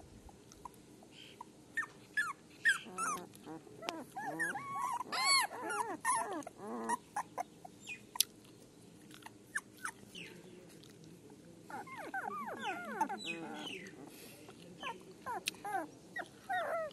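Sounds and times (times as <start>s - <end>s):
puppies whimpering and squealing: 1.8s - 8.0s, 11.7s - 14.2s, 14.8s - 16.9s.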